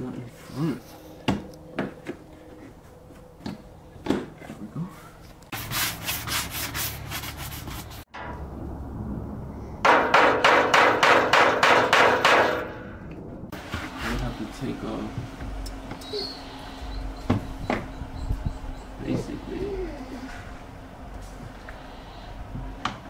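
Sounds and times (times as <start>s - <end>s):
sandpaper rubbing on filler: 5.5s - 8.1s.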